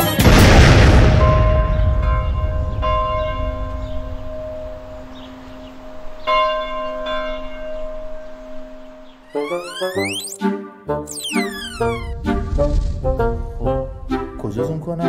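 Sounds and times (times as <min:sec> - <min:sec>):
bell tones ringing: 0:09.3 - 0:10.4, 0:11.1 - 0:12.1.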